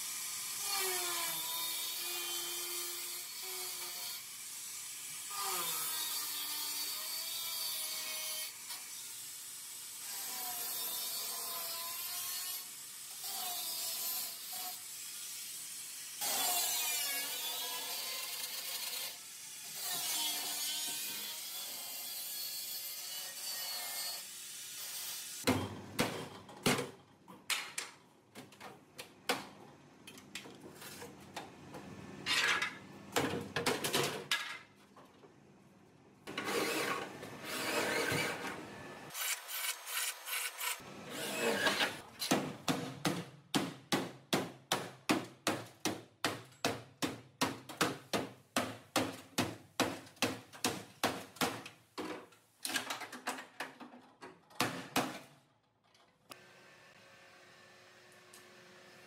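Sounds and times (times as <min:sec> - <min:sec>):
rasping scraping strokes: 0:36.3 - 0:42.0.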